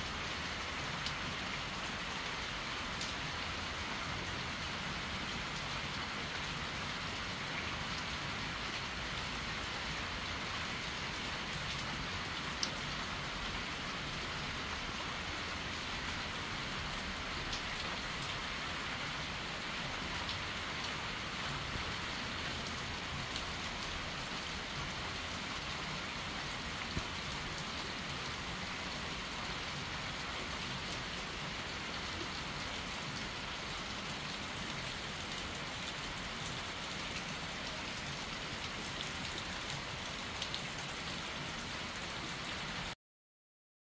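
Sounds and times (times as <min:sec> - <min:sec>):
rain falling on trees: 0:00.0 - 0:43.0.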